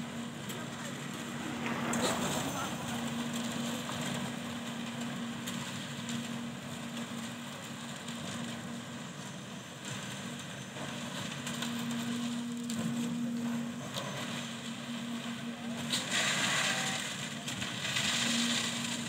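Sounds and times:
machine noise: 0.0 - 19.0.

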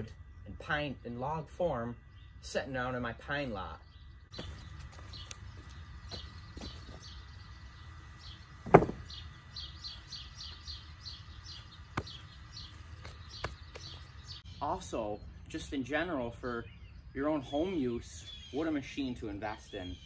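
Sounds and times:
bird chirping: 0.0 - 20.0
wood knocking: 8.6 - 9.1
wooden boards set down: 8.6 - 9.1.

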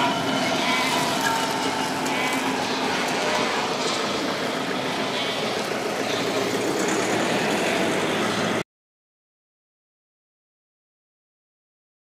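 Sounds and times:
diesel locomotive engine running: 0.0 - 8.6.

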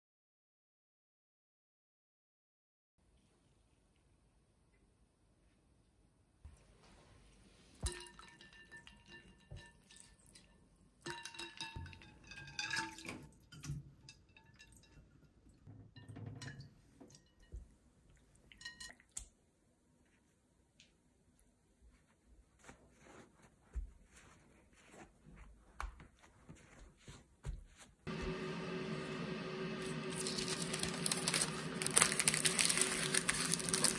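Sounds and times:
glass bowl clinking: 7.8 - 17.7, 18.4 - 19.1
water sloshing and dripping: 7.8 - 19.3.

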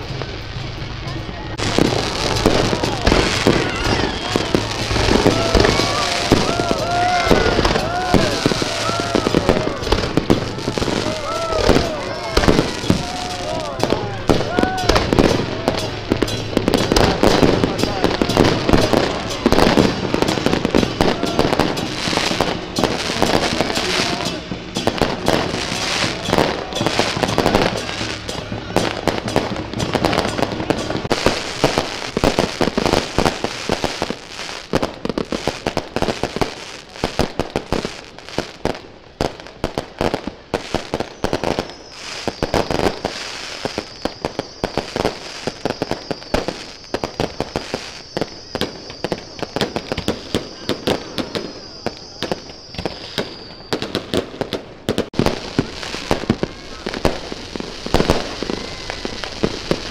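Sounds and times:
firecrackers crackling: 0.0 - 59.9
high steady whistle: 3.6 - 9.8, 41.0 - 54.2.

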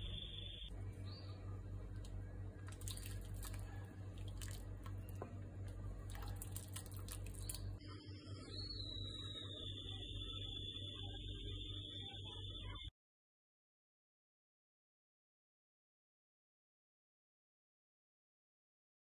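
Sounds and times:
steady low hum: 0.0 - 12.9
soup sloshing: 1.8 - 7.8
faint high steady tone: 7.8 - 12.9.

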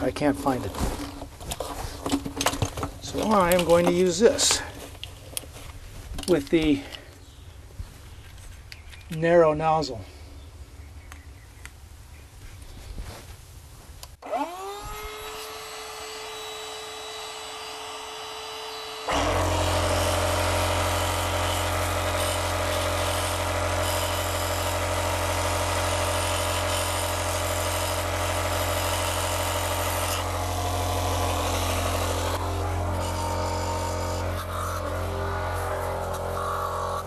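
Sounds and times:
air pump motor whining: 14.2 - 37.0
low hum: 29.8 - 37.0.

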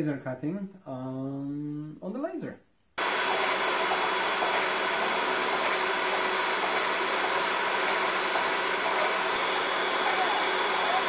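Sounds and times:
laser cutter fans and blowers rushing: 3.0 - 11.0.

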